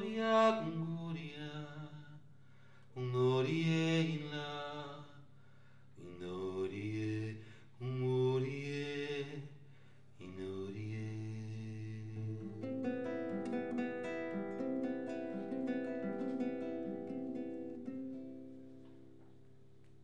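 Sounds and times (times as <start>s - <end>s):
man singing unaccompanied: 0.0s - 2.2s, 3.0s - 5.2s, 6.0s - 9.6s, 10.2s - 18.0s.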